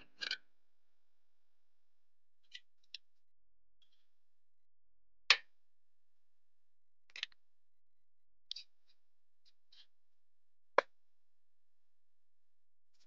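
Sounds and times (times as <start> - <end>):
faint ticks and scrapes: 8.5 - 9.9.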